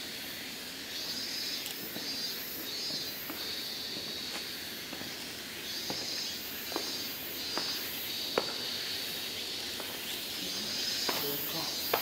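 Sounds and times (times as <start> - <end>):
high insect drone: 0.0 - 12.0
footsteps on stone path: 1.7 - 8.8, 9.6 - 10.3, 10.9 - 12.0.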